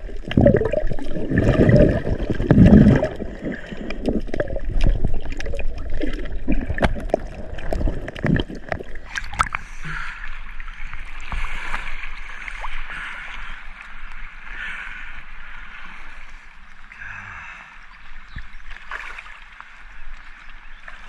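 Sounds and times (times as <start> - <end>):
low underwater rumble: 0.0 - 14.4
underwater bubbling and clicking: 0.0 - 15.5
water sloshing and lapping: 0.0 - 17.0, 18.0 - 21.0.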